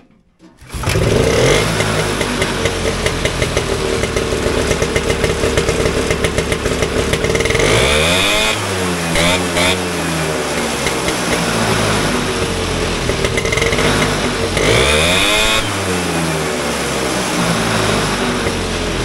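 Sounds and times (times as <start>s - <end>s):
snowmobile engine revving: 0.6s - 19.0s.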